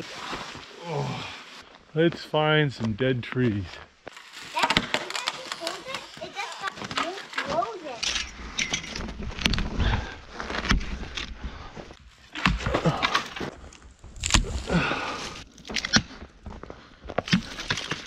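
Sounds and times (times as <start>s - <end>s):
rustling and scuffing: 0.0s - 12.3s
crunching footsteps: 0.0s - 18.0s
dead wood snapping: 4.1s - 7.6s, 12.3s - 16.2s, 17.2s - 18.0s.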